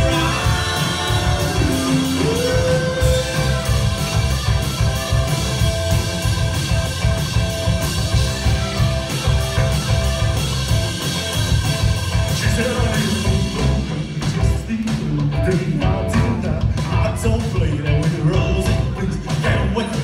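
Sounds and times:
rock band playing: 0.0s - 20.0s.

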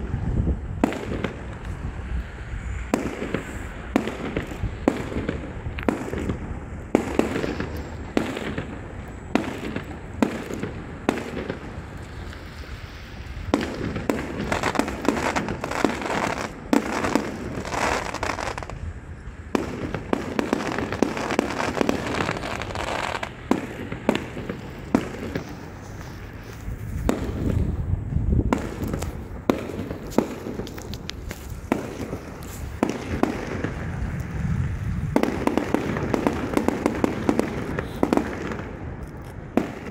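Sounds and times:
fireworks crackling: 0.0s - 39.9s
firework shells bursting: 13.5s - 18.8s, 19.6s - 27.8s, 28.5s - 34.4s.

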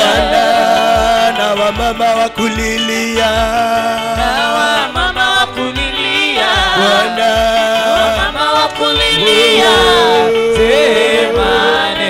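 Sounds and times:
held musical accompaniment: 0.0s - 12.0s
man singing: 0.0s - 12.0s
steady low beat: 9.0s - 12.0s.

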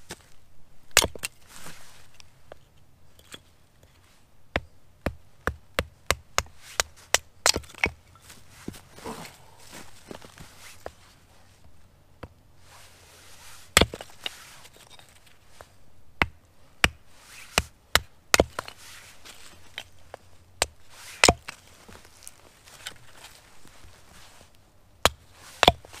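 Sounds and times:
hatchet chopping wood: 4.5s - 8.0s, 13.8s - 14.1s, 16.2s - 18.8s, 20.6s - 21.6s, 25.0s - 26.0s.

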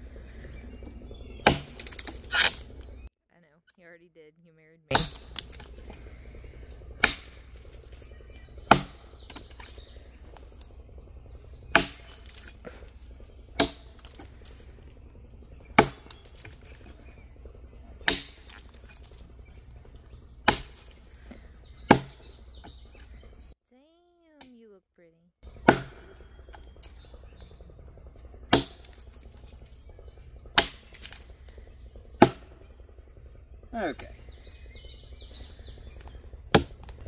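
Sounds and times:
axe chopping into log: 1.4s - 2.7s, 4.9s - 5.7s, 7.0s - 7.4s, 8.7s - 9.7s, 11.7s - 12.9s, 13.6s - 14.7s, 15.8s - 16.7s, 18.0s - 19.2s, 20.4s - 20.9s, 21.9s - 23.1s, 25.6s - 26.1s, 28.5s - 29.0s, 30.6s - 31.3s, 32.2s - 32.6s, 36.0s - 37.0s.

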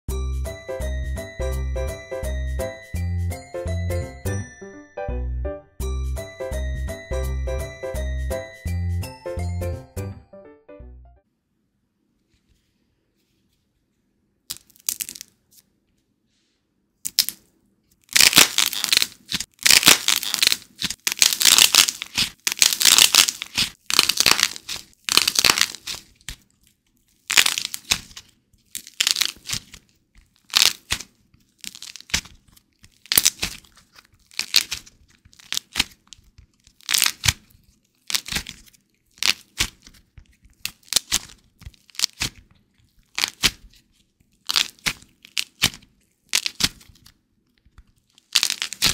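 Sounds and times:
clay cracking and crunching: 14.5s - 15.6s, 17.0s - 48.9s.

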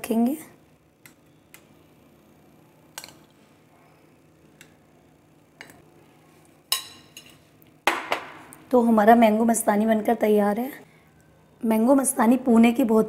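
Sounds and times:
spoon clinking against glass and bowl: 6.7s - 7.4s.

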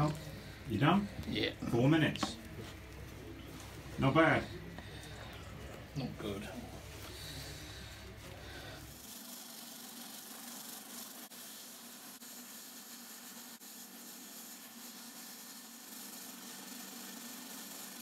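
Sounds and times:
plucking machine hissing: 7.0s - 18.0s.

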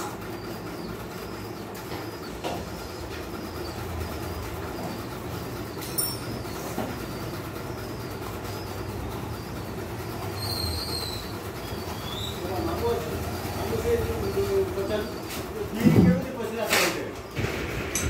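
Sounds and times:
faint bird chirps: 0.0s - 15.4s
metallic tool clink: 5.8s - 6.4s.

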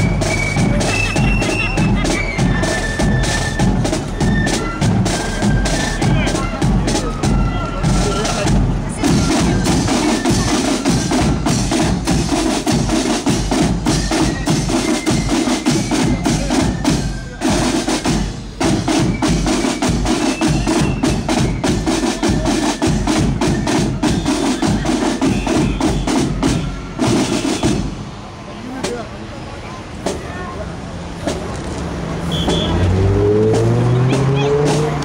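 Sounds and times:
marching snare drums: 0.0s - 28.2s, 28.8s - 29.1s, 32.2s - 35.0s
bass drum beat: 32.3s - 35.0s.

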